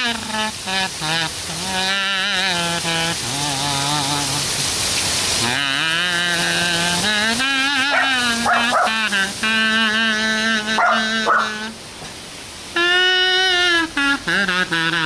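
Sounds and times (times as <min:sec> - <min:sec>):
heavy rain hiss: 0:00.0 - 0:15.0
kazoo held notes: 0:05.4 - 0:11.8, 0:12.7 - 0:15.0
small dog yelping: 0:07.9 - 0:09.0, 0:10.8 - 0:11.6.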